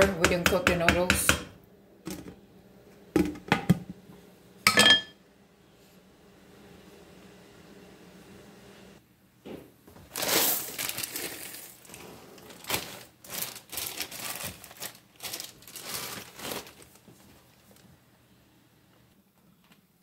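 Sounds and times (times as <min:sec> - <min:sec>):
crinkling and rustling: 0:09.9 - 0:18.0, 0:19.2 - 0:20.0.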